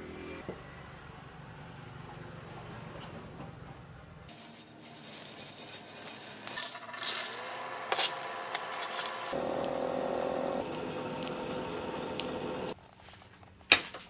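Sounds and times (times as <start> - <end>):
coal lumps scraping and knocking: 4.3 - 9.4.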